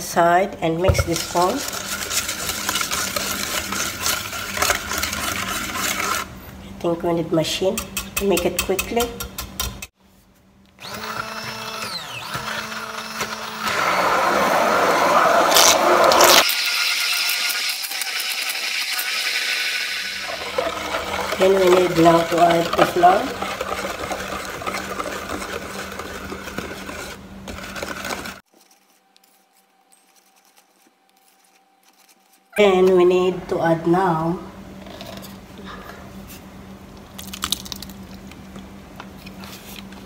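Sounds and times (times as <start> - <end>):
immersion blender whirring: 1.0 - 6.3, 10.8 - 28.5
spatula stirring batter in a bowl: 1.0 - 6.3, 20.3 - 29.0.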